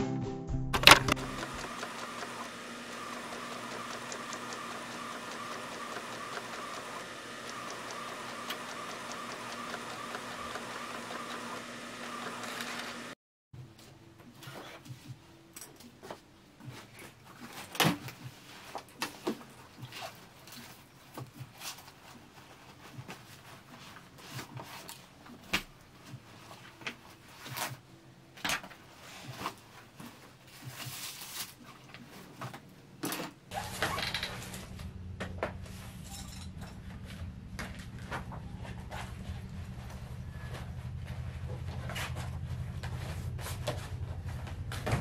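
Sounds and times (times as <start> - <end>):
steady low hum: 34.3 - 45.0.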